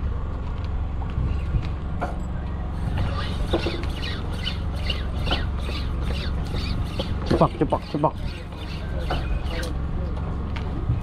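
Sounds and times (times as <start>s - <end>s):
boat engine rumble: 0.0s - 11.0s
short high squeaks: 2.7s - 9.7s.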